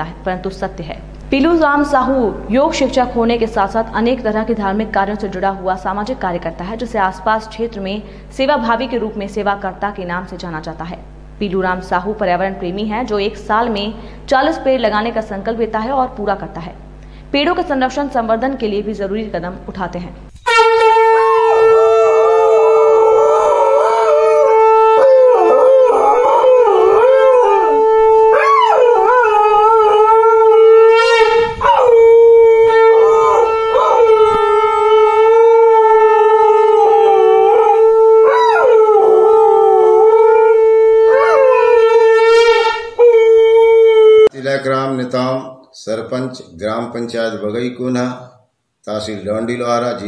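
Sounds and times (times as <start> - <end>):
conch shell blown: 20.3 - 44.3
dog howling: 20.4 - 44.3.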